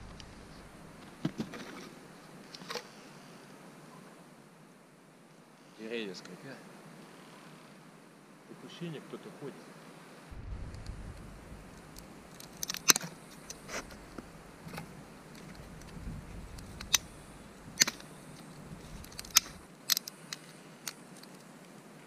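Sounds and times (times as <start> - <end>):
dry twigs snapping: 10.7 - 21.4.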